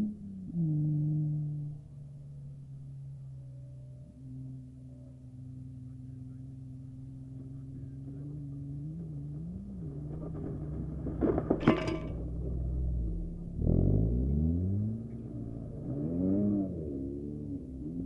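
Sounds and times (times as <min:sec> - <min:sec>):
race car engines humming: 0:00.0 - 0:18.0.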